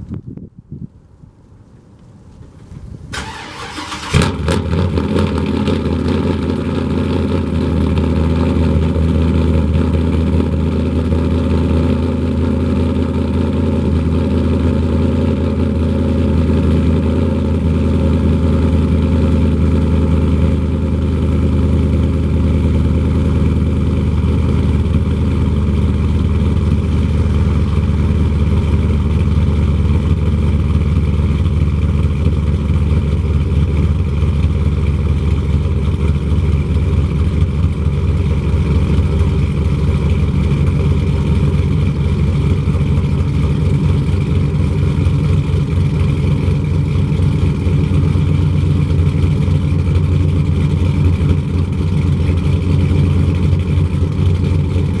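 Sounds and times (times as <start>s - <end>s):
engine cranking and starting: 3.1s - 5.3s
engine idling: 3.2s - 55.0s.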